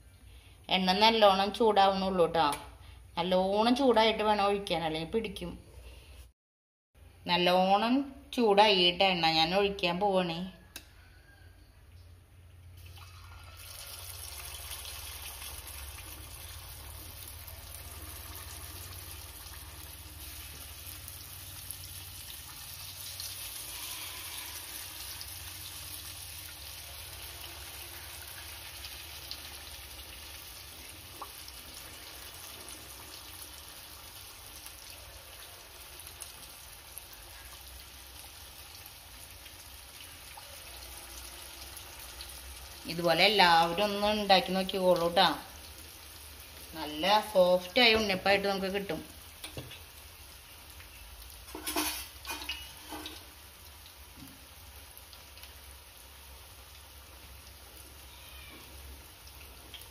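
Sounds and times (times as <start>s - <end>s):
batter sizzling in hot oil: 12.8s - 59.9s.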